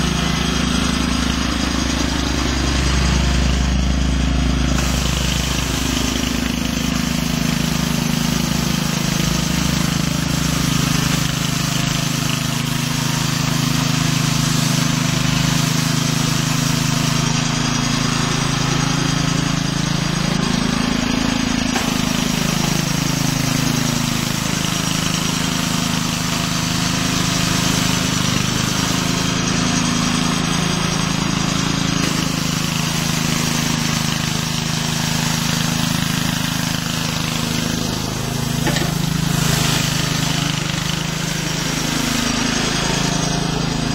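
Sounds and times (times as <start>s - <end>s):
small sweeper engine running: 0.0s - 43.9s
brush scrubbing over asphalt: 4.8s - 17.2s, 21.7s - 25.5s, 31.8s - 43.5s.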